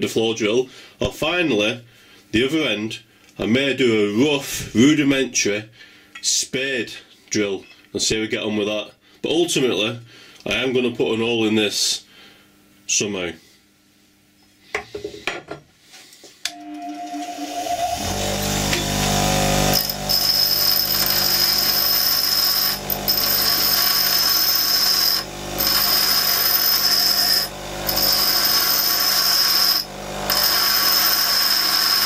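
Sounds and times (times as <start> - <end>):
bench grinder motor hum: 16.5 - 32.0
rod grinding on wheel: 17.4 - 32.0.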